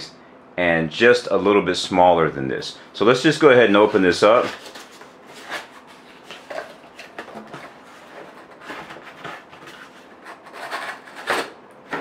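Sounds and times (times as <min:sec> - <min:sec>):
cardboard scraping and rustling: 0:03.9 - 0:12.0.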